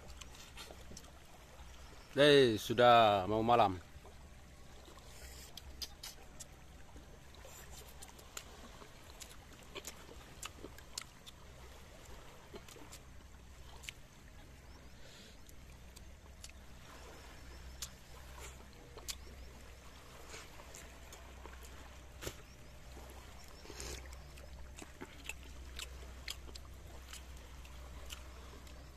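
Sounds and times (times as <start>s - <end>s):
faint sea wash: 0.0s - 28.9s
eating clicks and smacks: 5.5s - 6.5s.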